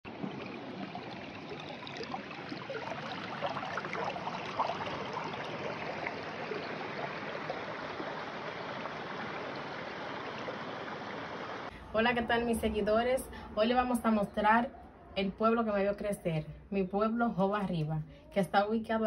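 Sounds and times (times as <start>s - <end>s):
stream running over rocks: 0.1s - 11.7s.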